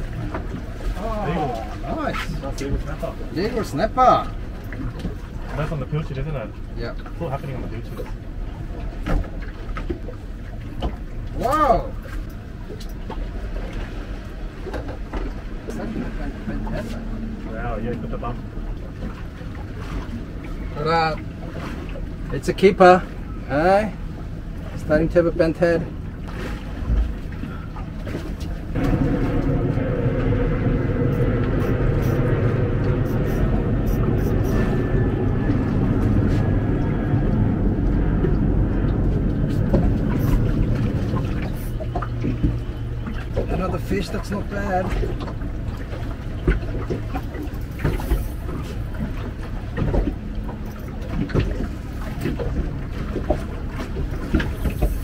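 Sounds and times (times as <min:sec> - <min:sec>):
boat engine running: 0:00.0 - 0:55.0
wind on microphone: 0:26.4 - 0:43.6.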